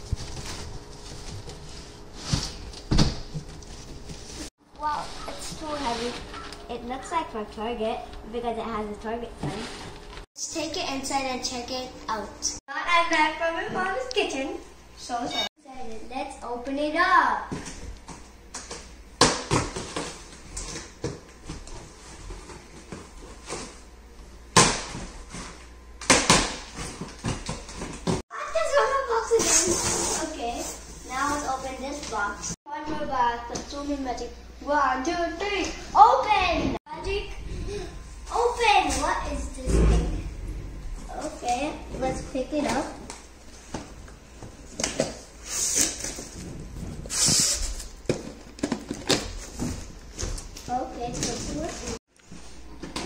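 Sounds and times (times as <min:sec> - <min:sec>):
box scraping inside cardboard: 0:29.4 - 0:30.4.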